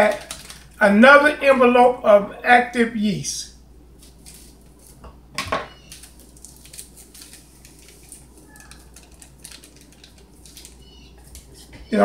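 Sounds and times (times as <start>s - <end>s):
paper packet crinkling: 0.0s - 0.9s, 3.9s - 5.1s, 5.7s - 12.0s
scissors snipping paper packet: 5.8s - 11.8s.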